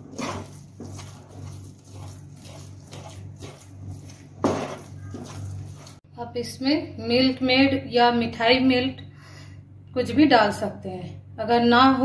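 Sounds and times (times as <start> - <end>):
spatula scraping frying pan: 0.0 - 6.0.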